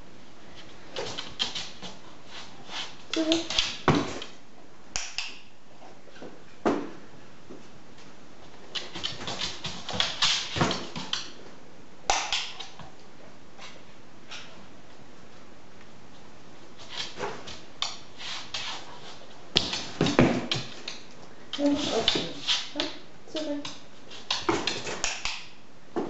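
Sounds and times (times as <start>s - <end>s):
dog claws clicking on hard floor: 1.0s - 2.0s, 8.7s - 11.4s, 23.6s - 25.5s.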